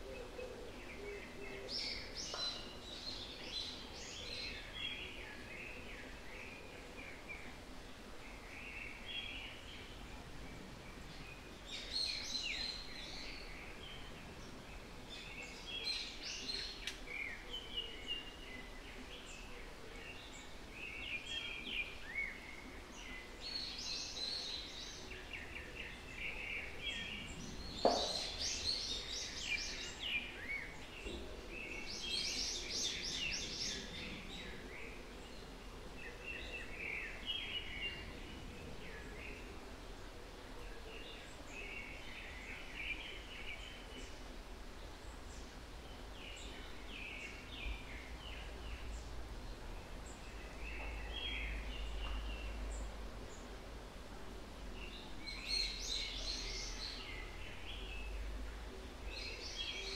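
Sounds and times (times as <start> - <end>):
faint background hiss: 0.0 - 59.9
songbirds singing: 0.0 - 59.9
sharp knock: 27.8 - 28.4.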